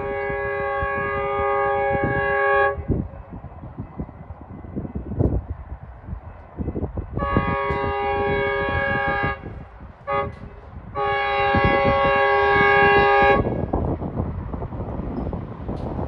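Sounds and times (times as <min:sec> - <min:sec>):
train horn chord: 0:00.0 - 0:03.0, 0:07.2 - 0:13.7
wind buffeting microphone: 0:00.0 - 0:16.0.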